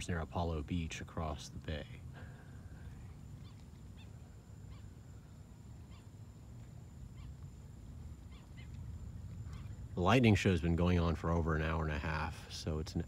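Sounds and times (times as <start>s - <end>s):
steady low rumble: 0.0s - 13.0s
faint animal calls: 1.8s - 10.0s.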